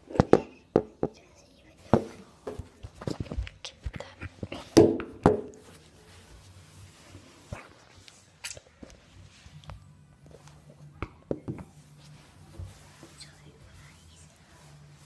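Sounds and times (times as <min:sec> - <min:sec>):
fabric rubbing on microphone: 0:05.6 - 0:08.4, 0:11.7 - 0:15.0.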